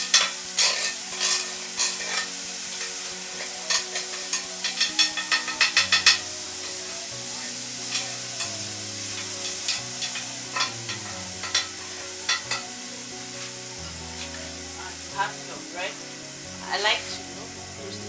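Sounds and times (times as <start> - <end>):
utensil scraping and knocking pan: 0.0 - 2.8
vegetables sizzling in a frying pan: 0.0 - 18.0.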